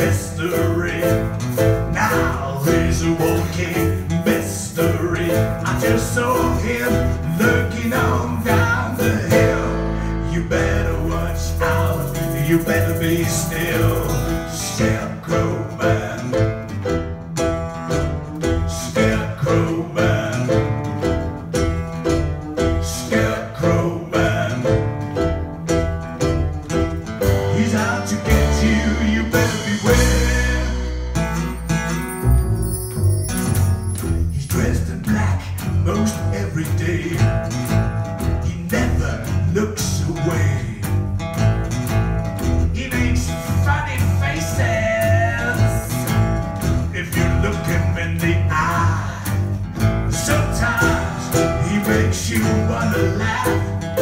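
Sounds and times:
strummed acoustic guitar: 0.0s - 54.0s
cajon: 10.6s - 15.0s, 43.8s - 54.0s.

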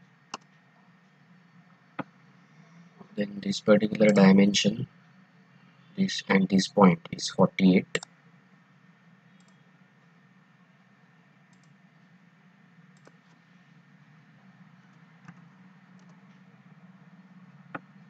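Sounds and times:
low steady hum: 0.0s - 18.0s
computer mouse and keyboard clicks: 13.0s - 13.4s.

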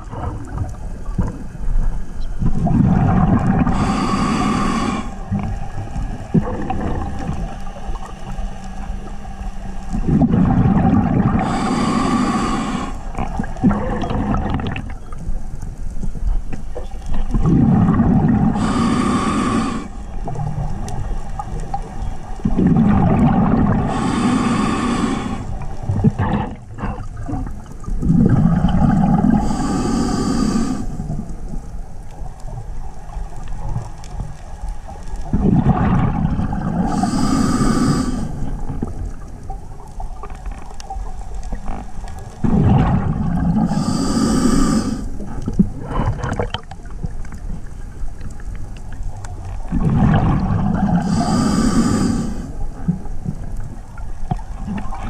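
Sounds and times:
diver breathing through regulator: 2.9s - 7.3s, 10.1s - 14.3s, 17.6s - 20.1s, 22.6s - 27.2s, 28.0s - 31.2s, 36.6s - 38.6s, 42.4s - 46.5s, 49.8s - 53.0s.

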